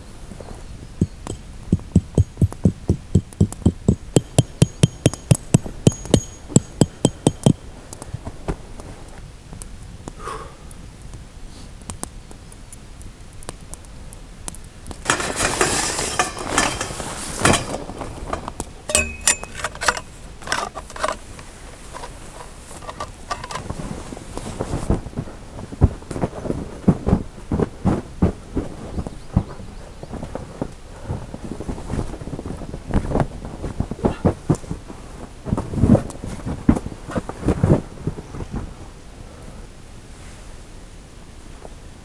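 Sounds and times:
dull knocks: 1.0s - 7.6s
metal tent poles clinking: 1.0s - 7.6s, 15.0s - 23.8s
ringing metal clank: 1.0s - 7.6s, 15.1s - 21.2s.

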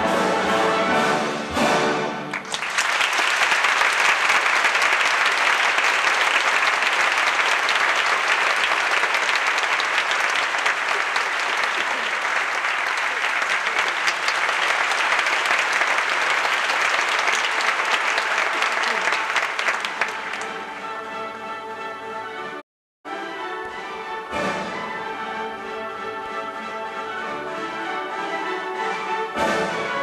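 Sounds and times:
audience applauding: 2.3s - 21.0s.

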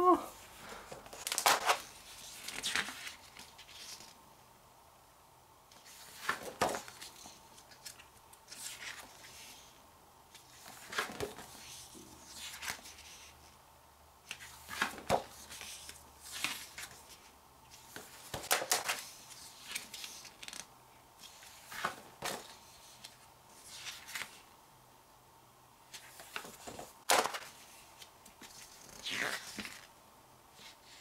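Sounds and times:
book pages turning: 0.9s - 4.2s, 5.7s - 9.7s, 10.3s - 13.4s, 14.3s - 24.4s, 25.9s - 29.9s.

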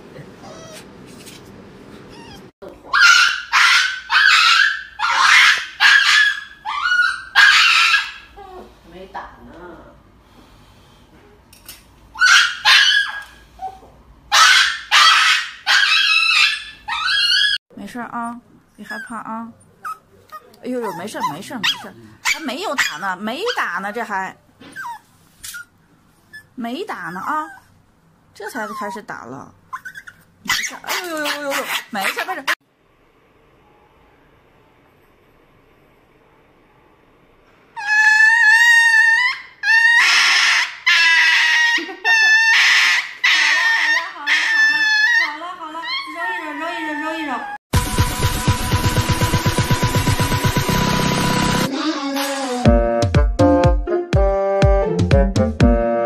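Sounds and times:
small dog yelping: 0.4s - 0.9s, 2.1s - 8.3s, 12.2s - 17.6s, 19.8s - 24.0s, 24.6s - 25.7s, 28.6s - 29.1s, 29.7s - 32.6s, 37.8s - 47.6s.

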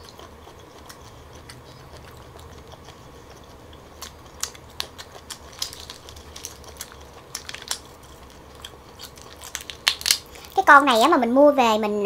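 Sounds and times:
prawn shells crackling and snapping: 0.0s - 10.7s.

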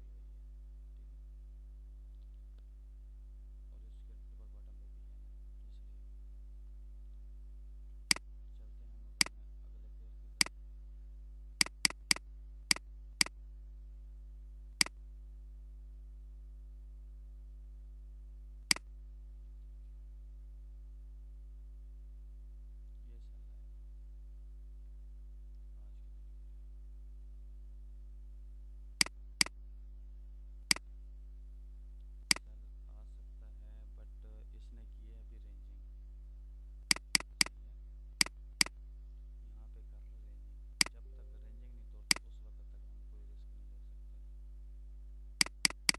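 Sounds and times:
steady low hum: 0.0s - 45.9s
computer mouse clicking: 11.6s - 13.3s, 36.9s - 37.5s, 45.4s - 45.9s
computer mouse button clicking: 36.9s - 37.5s, 45.4s - 45.9s.

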